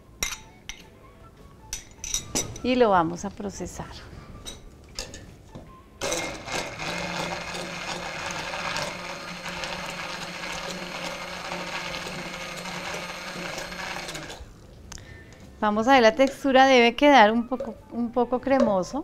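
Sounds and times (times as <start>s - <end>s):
immersion blender running: 6.0s - 14.5s.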